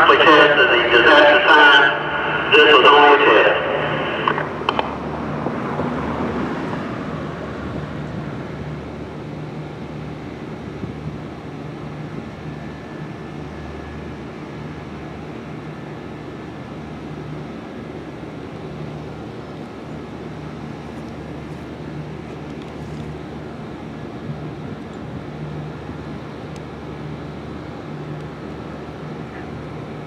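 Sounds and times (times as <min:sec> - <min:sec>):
announcement echo: 0:00.0 - 0:05.0
distant traffic rumble: 0:00.0 - 0:30.0.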